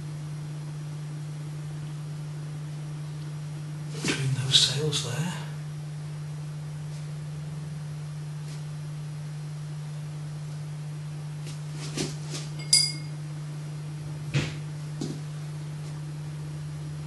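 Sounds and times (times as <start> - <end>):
steady low hum: 0.0 - 17.0
ringing clink: 12.6 - 13.2.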